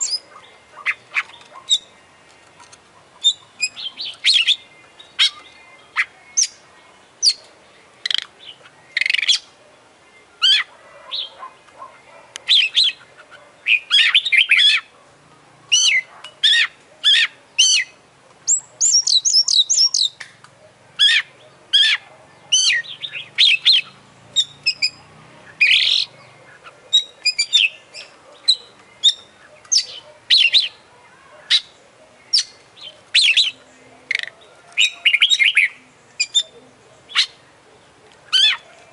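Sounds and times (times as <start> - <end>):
bird singing whistled phrases: 18.5 - 20.2.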